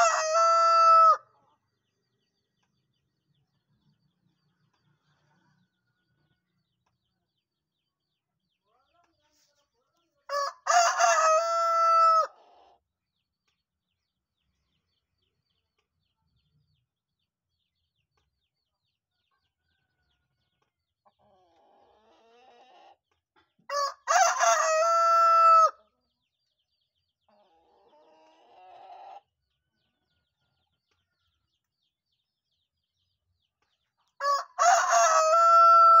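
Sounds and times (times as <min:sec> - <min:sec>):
rooster crowing: 0:00.0 - 0:01.2, 0:10.3 - 0:12.3, 0:23.7 - 0:25.8, 0:34.2 - 0:36.0.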